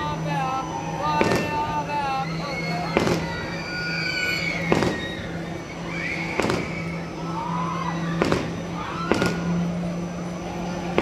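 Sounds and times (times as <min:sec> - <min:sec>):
steady low hum: 0:00.0 - 0:11.0
fireworks bangs: 0:01.1 - 0:01.8, 0:02.9 - 0:03.4, 0:04.6 - 0:05.2, 0:06.3 - 0:07.0, 0:08.2 - 0:09.8.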